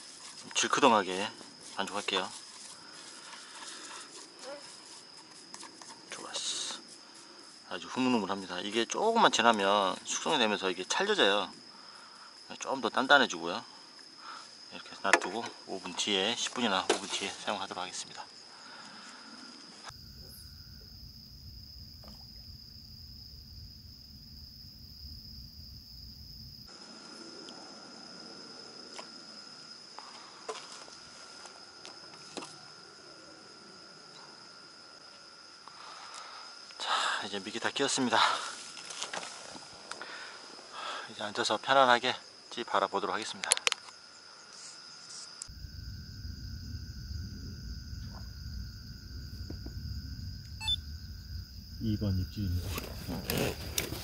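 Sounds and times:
crickets trilling: 0.0s - 54.0s
low rumble: 45.5s - 51.8s.

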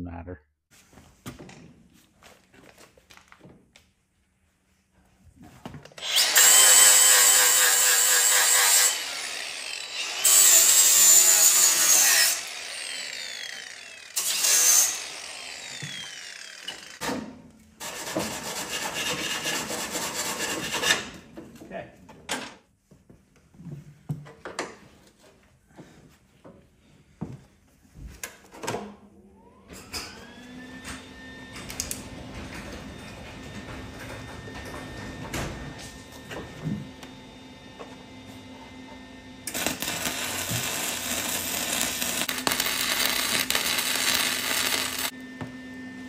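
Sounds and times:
angle grinder grinding metal: 6.0s - 17.0s, 39.4s - 45.2s.

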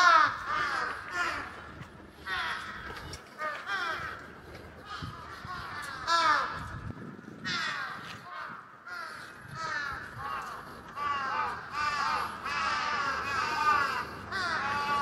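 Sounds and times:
crows cawing: 0.0s - 6.8s, 7.4s - 15.0s.

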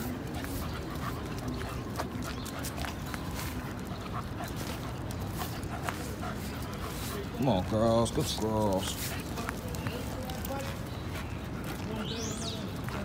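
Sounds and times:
dogs sniffing: 0.0s - 13.0s.

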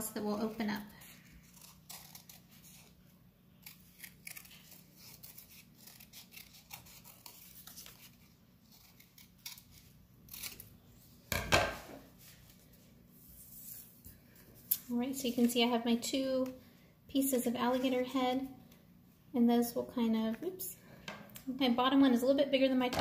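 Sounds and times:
scissors cutting paper: 0.4s - 3.0s, 3.6s - 10.7s.

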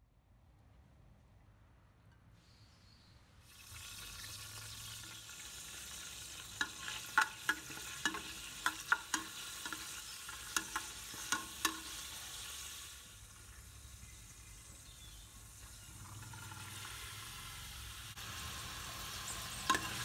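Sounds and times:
leaves sizzling in hot oil: 3.4s - 20.0s
metal spoon clinking against pot: 6.6s - 12.0s, 19.6s - 20.0s.

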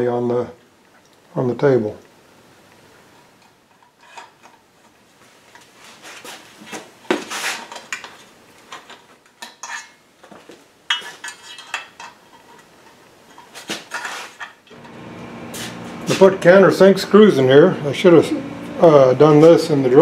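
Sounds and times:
metal tools and screws clinking: 3.4s - 4.6s, 7.7s - 10.0s, 10.9s - 14.9s.

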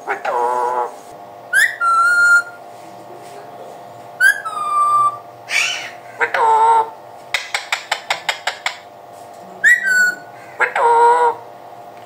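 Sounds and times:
parakeet calling: 1.5s - 2.6s, 4.2s - 8.9s, 9.6s - 11.4s
parakeet whistles: 1.5s - 2.6s, 4.2s - 6.0s, 9.6s - 10.3s
harsh squawk: 4.2s - 6.8s.

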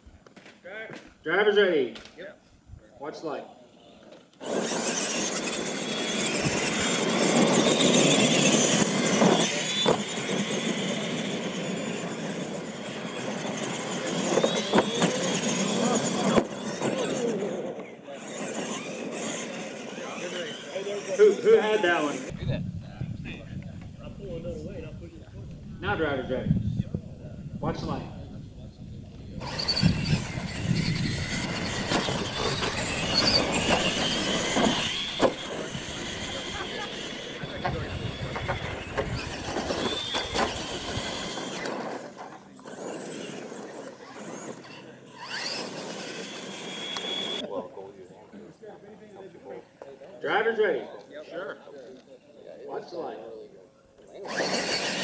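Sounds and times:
toy truck motors whining: 3.8s - 22.4s, 29.1s - 47.5s, 53.9s - 55.0s
tyres scrabbling over dirt: 29.4s - 47.4s.

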